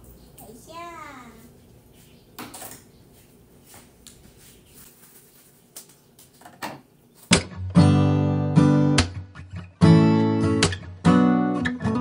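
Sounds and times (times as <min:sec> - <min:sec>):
strummed acoustic guitar music: 0:07.3 - 0:12.0.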